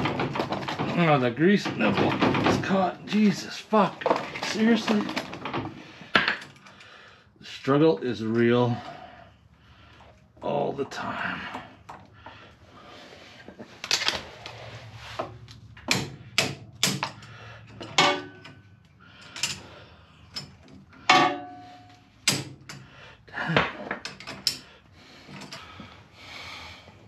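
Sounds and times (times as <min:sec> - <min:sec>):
pliers knocking on steel linkage: 0:15.8 - 0:17.3.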